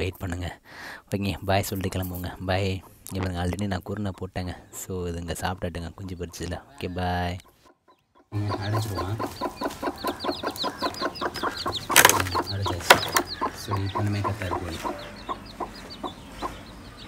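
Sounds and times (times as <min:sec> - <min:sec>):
chicks peeping: 0:00.0 - 0:17.0
hen clucking: 0:00.0 - 0:17.0.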